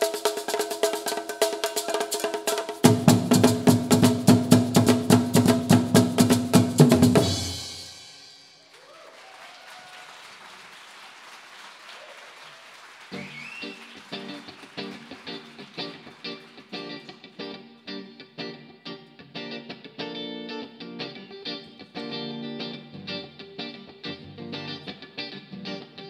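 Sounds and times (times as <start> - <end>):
fast drum rhythm: 0.0 - 8.3
guitar plucked notes: 14.1 - 26.0.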